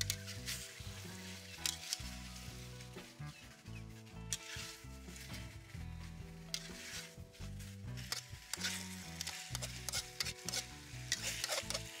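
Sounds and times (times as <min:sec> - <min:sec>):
metal ladle scraping wok: 0:04.3 - 0:05.5, 0:06.5 - 0:07.2, 0:07.9 - 0:12.0
food sizzling: 0:07.8 - 0:12.0.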